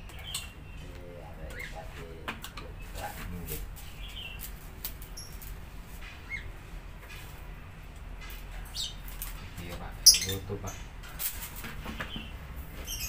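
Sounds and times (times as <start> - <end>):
bird chirps: 0.0 - 1.8, 3.8 - 5.5, 10.0 - 10.9, 12.0 - 13.0.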